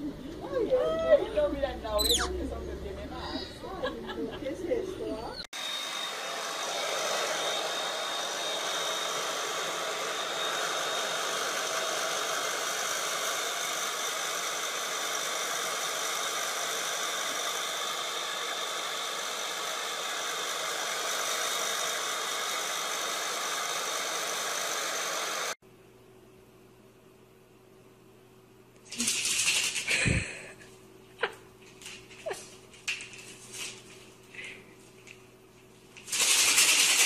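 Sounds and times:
vacuum cleaner running: 0:05.6 - 0:25.6.

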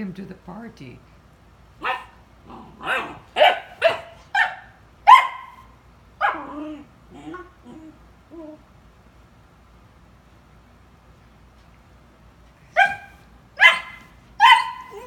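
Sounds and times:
puppy barking: 0:01.8 - 0:07.8, 0:12.7 - 0:15.0.

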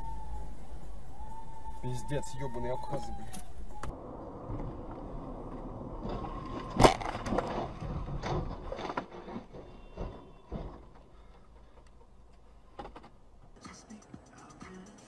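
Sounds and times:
car crash: 0:03.9 - 0:11.3
car body tumbling bangs and clatters: 0:05.7 - 0:11.8.

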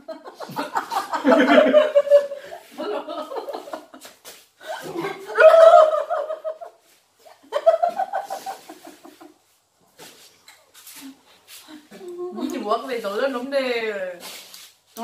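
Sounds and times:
young women laughing: 0:00.0 - 0:04.1, 0:04.7 - 0:09.4.

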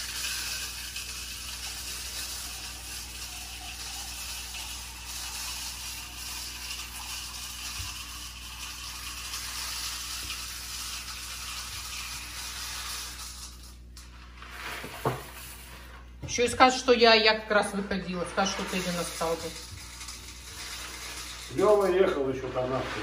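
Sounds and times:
tap running: 0:00.0 - 0:12.4, 0:14.8 - 0:16.8.

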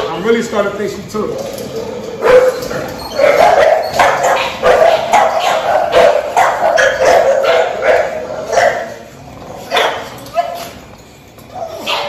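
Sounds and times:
dogs barking: 0:01.6 - 0:10.8, 0:11.6 - 0:12.0.

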